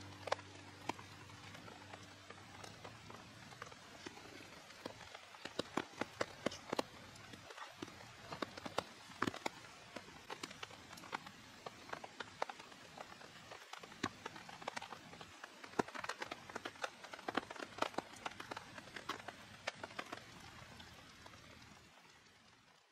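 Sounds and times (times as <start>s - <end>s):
raindrops tapping on a tarp: 0.0s - 22.9s
steady rain hiss: 0.0s - 22.9s.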